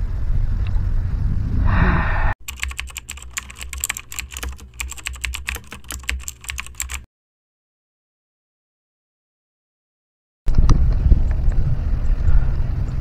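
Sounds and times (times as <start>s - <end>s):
low outdoor rumble: 0.0s - 2.4s, 10.5s - 13.0s
keyboard key clicks: 2.4s - 7.1s.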